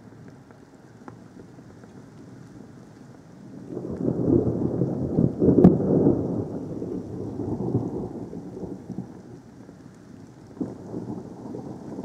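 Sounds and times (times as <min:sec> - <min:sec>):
thunder rumbling and cracking: 0:03.7 - 0:09.8, 0:10.5 - 0:12.0.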